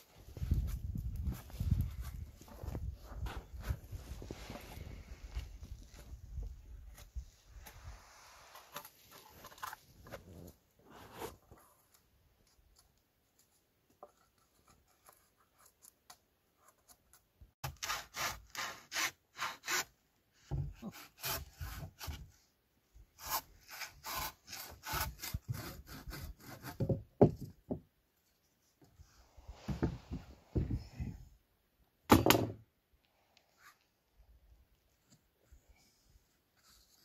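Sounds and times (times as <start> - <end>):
handsaw cutting wood: 17.6 - 19.9, 20.8 - 22.2, 23.2 - 26.8.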